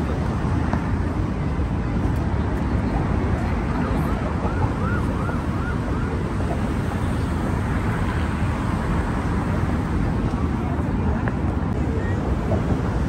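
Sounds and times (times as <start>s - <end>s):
city road traffic rumble: 0.0s - 13.0s
wind on microphone: 0.0s - 13.0s
distant siren yelp: 3.8s - 6.6s.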